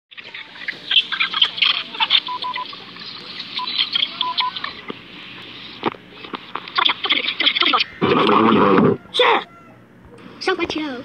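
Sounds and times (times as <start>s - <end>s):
short dialing beeps: 2.2s - 2.7s, 3.6s - 4.6s.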